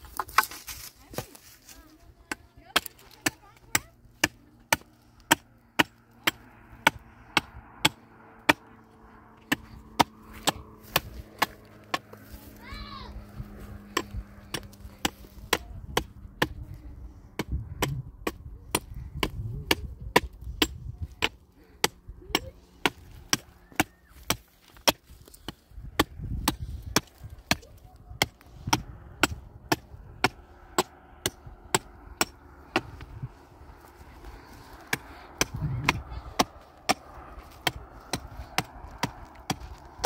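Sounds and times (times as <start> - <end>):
tool striking wood: 9.4 - 12.1, 28.2 - 33.1, 34.8 - 40.0.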